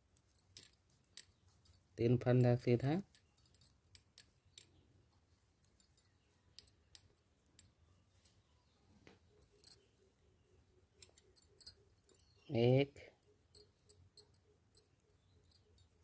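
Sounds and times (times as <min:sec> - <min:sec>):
knitting needles clicking: 0:00.1 - 0:08.4, 0:10.9 - 0:12.3.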